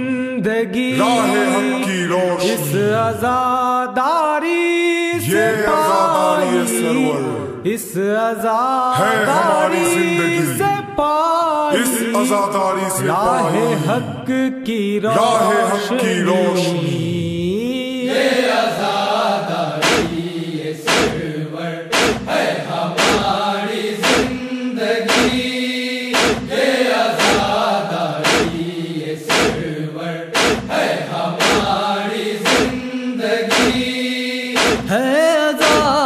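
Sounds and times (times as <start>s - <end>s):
men chanting a lament: 0.0s - 36.0s
chest-beating thuds: 19.8s - 20.3s, 20.9s - 21.3s, 21.9s - 23.4s, 24.0s - 24.4s, 25.1s - 26.6s, 27.2s - 27.6s, 28.2s - 28.7s, 29.3s - 29.7s, 30.4s - 31.8s, 32.4s - 32.9s, 33.5s - 34.0s, 34.6s - 35.0s, 35.6s - 36.0s.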